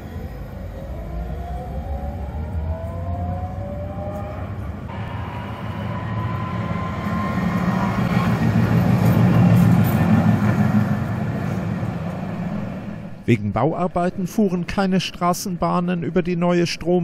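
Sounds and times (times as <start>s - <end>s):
tram passing with wheel noise: 0.0s - 13.2s
tram whine: 0.0s - 13.3s.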